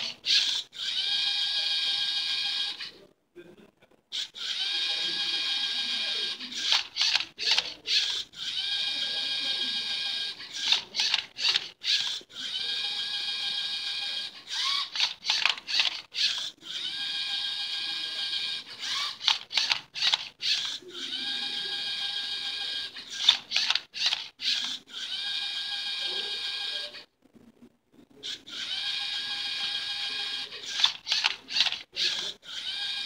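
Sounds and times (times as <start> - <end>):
electric motors whining: 4.2 - 26.9
plastic clicking and clacking: 10.6 - 11.7, 14.9 - 16.4, 23.2 - 24.8, 30.6 - 32.3.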